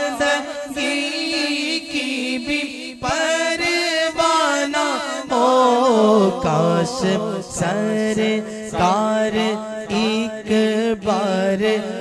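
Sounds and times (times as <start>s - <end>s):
man singing without instruments: 0.0s - 12.0s.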